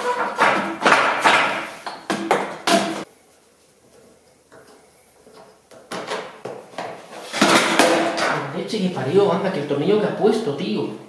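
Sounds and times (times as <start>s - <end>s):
car parts knocking and clattering: 0.1s - 3.1s, 4.5s - 8.4s.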